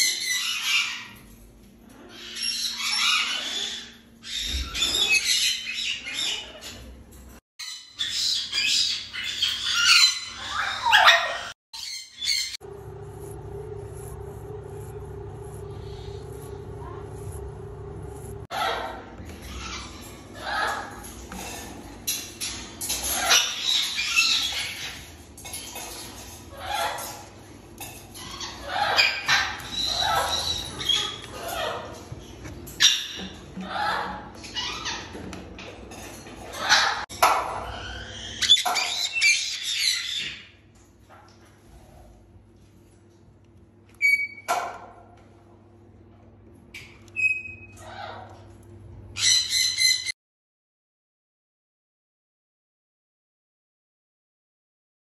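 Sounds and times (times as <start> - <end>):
parrots squawking: 0.0 - 1.3, 1.9 - 6.9, 7.6 - 12.6, 18.3 - 27.2, 27.8 - 40.6, 46.8 - 48.5, 49.1 - 50.1.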